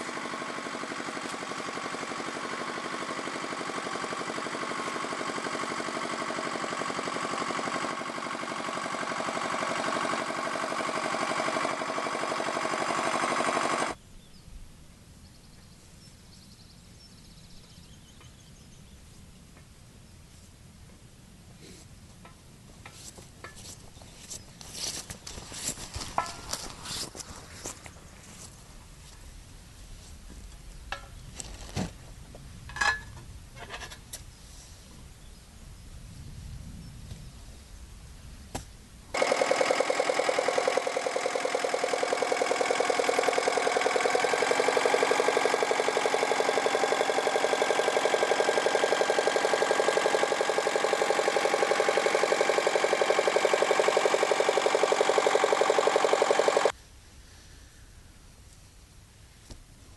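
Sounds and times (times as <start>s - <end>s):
tractor engine running: 0.0s - 14.0s, 22.2s - 29.2s, 39.1s - 56.8s
outdoor ambience: 0.0s - 59.9s.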